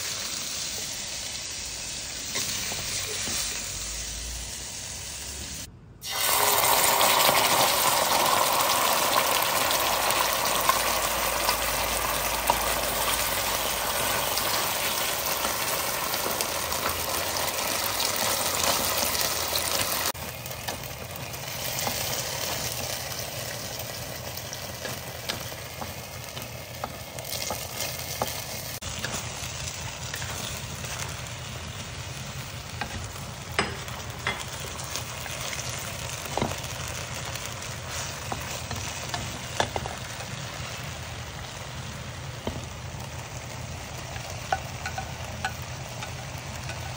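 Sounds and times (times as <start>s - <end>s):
sauce sizzling in a wok: 0.0s - 46.9s
spatula scraping a wok: 37.8s - 39.9s.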